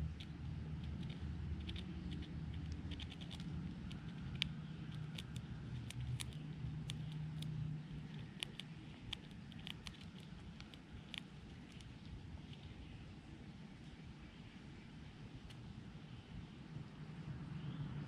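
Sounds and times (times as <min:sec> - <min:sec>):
chipmunk cracking seed hulls: 0:00.0 - 0:12.8.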